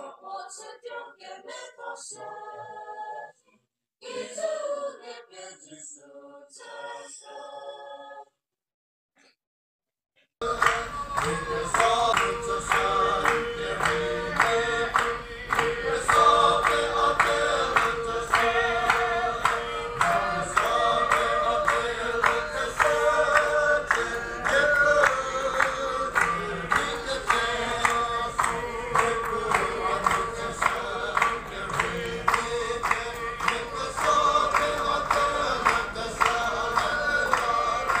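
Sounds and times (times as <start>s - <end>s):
congregation singing: 0.0s - 3.4s, 4.0s - 8.3s, 10.4s - 38.0s.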